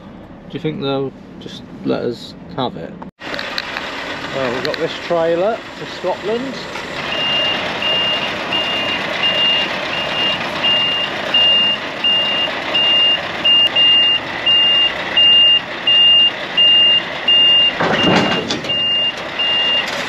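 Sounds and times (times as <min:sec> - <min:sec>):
diesel engine running: 0:00.0 - 0:20.0
truck reversing alarm beeping: 0:05.1 - 0:20.0.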